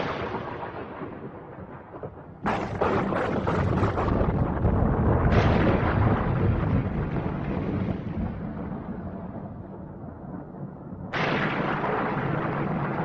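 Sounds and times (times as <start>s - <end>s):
continuous rumbling: 0.0s - 13.0s
loud boom: 2.4s - 8.2s, 11.1s - 13.0s.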